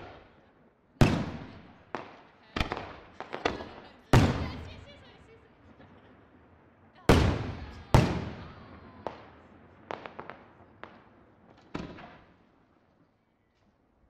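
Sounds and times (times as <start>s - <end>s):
firework bangs echoing: 0.0s - 0.4s, 1.0s - 12.7s
small firework cracks: 0.0s - 14.0s.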